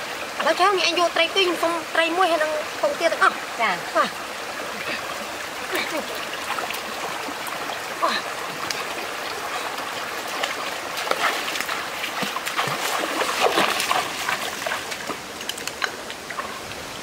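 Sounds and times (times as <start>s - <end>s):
stream running over rocks: 0.0s - 17.0s
people wading splashing: 4.0s - 16.6s.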